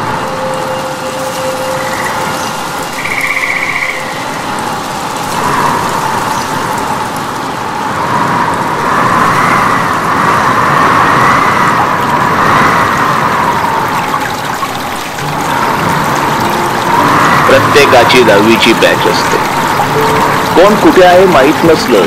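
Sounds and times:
rushing water: 0.0s - 22.0s.

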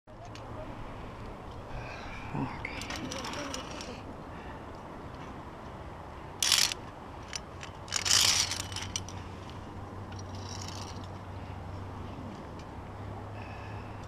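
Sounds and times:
carabiners scraping on steel cable: 2.8s - 4.0s, 6.4s - 11.2s
light carabiner clicks: 6.4s - 11.2s.

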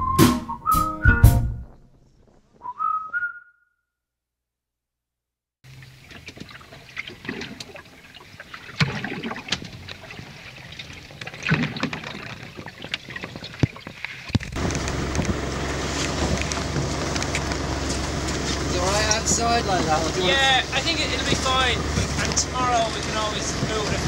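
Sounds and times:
wooden hull creaking and knocking: 11.2s - 24.0s.

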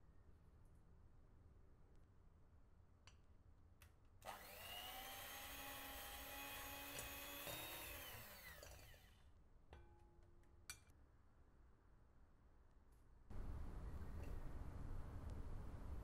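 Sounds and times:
electric hand mixer motor: 4.3s - 9.2s.

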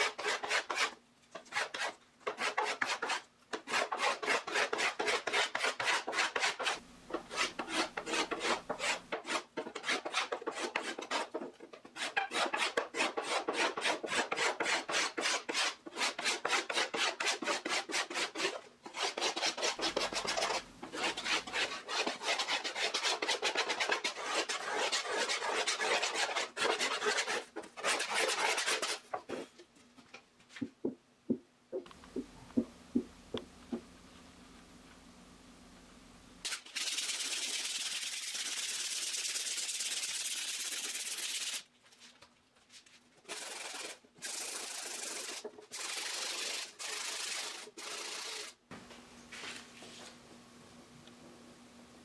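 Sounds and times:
hand tool scraping wood: 0.0s - 29.6s
sandpaper rubbing wood: 1.5s - 29.0s, 36.5s - 41.6s, 43.3s - 48.6s.

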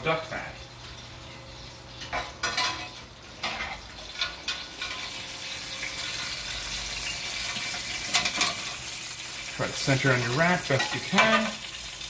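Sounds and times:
metal utensils clinking on pan: 2.0s - 5.2s, 7.6s - 8.8s, 10.4s - 11.7s.

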